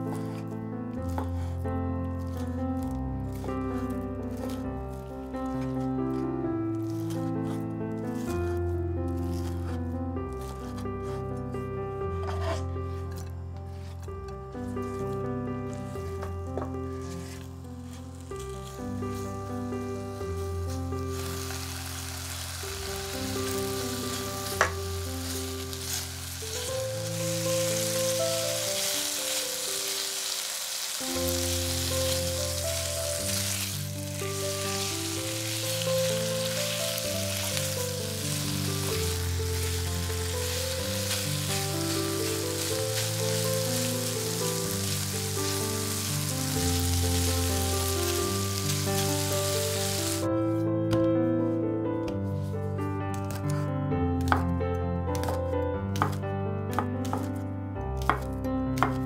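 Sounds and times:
calm background music: 0.0 - 59.0
food sizzling in a pan: 20.1 - 50.3.

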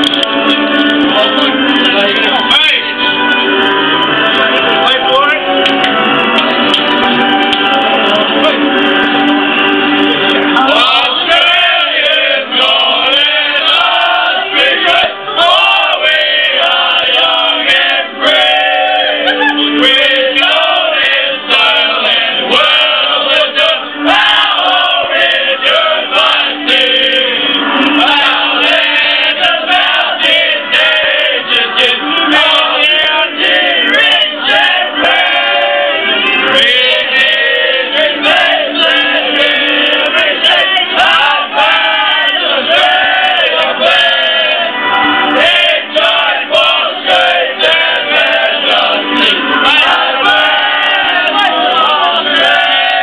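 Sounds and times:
men singing an anthem: 10.6 - 44.7, 45.4 - 53.0.

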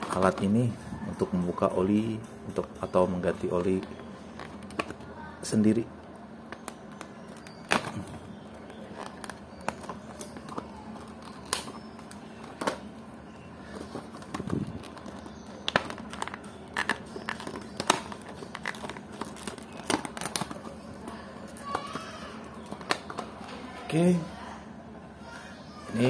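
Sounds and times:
plastic crackling: 0.0 - 1.3, 3.3 - 23.9
scissors cutting plastic packaging: 6.5 - 12.9, 13.6 - 23.2.

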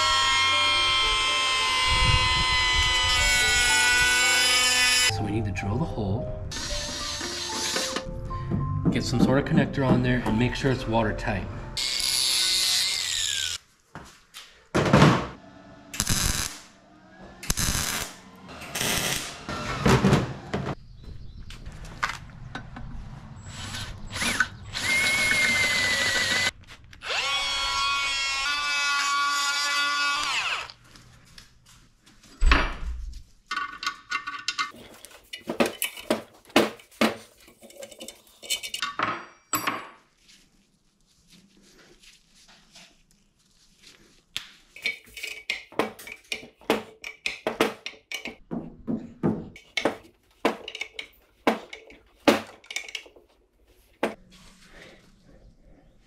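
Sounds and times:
power drill whining: 0.0 - 5.1, 6.5 - 8.0, 23.4 - 30.8
metal parts clattering: 33.5 - 39.0, 50.6 - 53.2.

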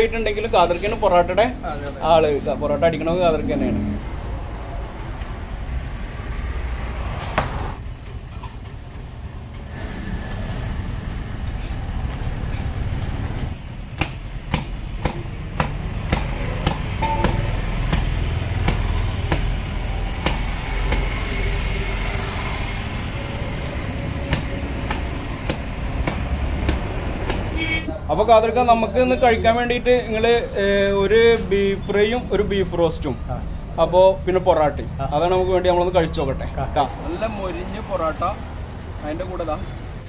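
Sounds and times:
steady low rumble: 0.0 - 7.0.

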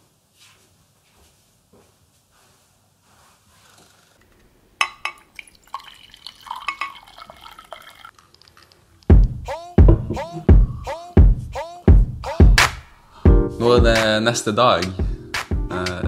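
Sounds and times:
coffee trickling into mug: 4.8 - 8.9
glass clinks: 5.8 - 7.7
music with heavy beat: 9.1 - 14.2, 14.8 - 16.0.

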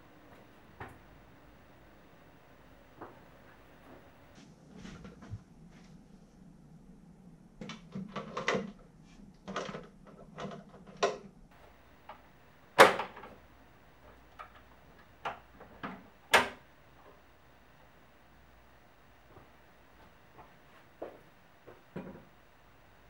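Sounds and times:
wooden knocks and clunks: 19.2 - 22.6.

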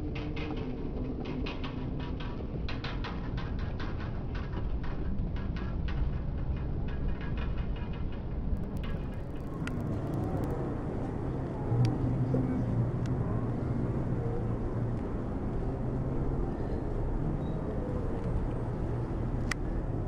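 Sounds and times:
vehicle engine running: 8.6 - 11.4.

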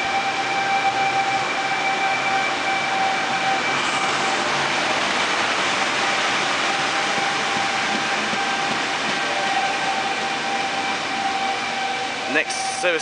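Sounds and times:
electric train rumble and whine: 0.0 - 13.0.

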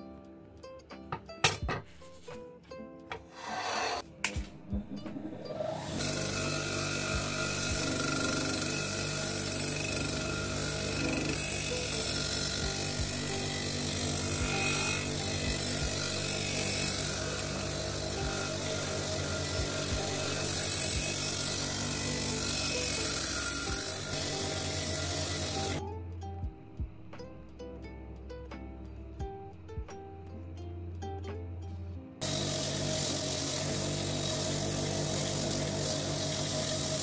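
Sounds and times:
background music: 0.0 - 37.0
wire wheel scrubbing metal: 3.3 - 4.1, 5.3 - 25.8, 32.2 - 37.0
grinder motor running: 5.5 - 25.8, 32.2 - 37.0.

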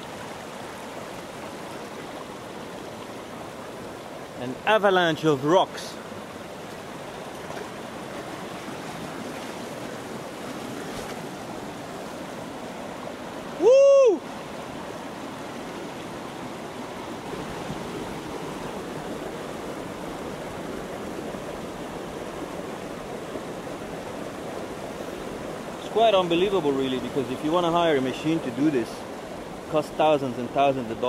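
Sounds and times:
water running over rocks: 0.0 - 31.0
man shouting woo: 13.5 - 14.3.

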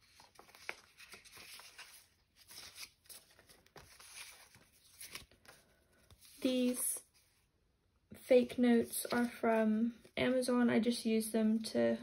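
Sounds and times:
banknotes rustling and flicking: 0.0 - 7.3, 8.6 - 10.0.

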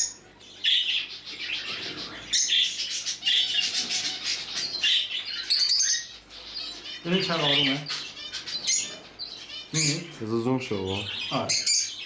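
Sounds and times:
budgerigars chirping and warbling: 0.0 - 12.0.

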